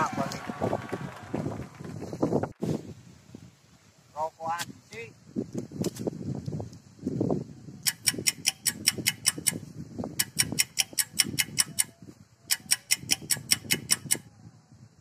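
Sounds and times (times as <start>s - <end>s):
rapid sharp ticking: 7.9s - 9.6s, 12.5s - 14.2s.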